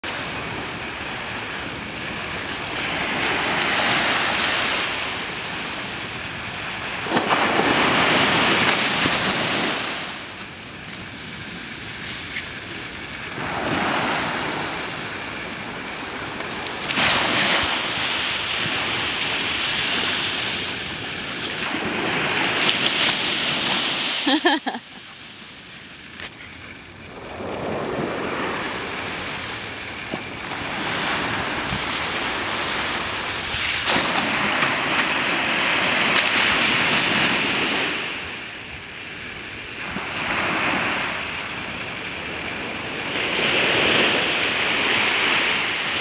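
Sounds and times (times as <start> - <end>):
waves breaking on beach: 0.0 - 46.0.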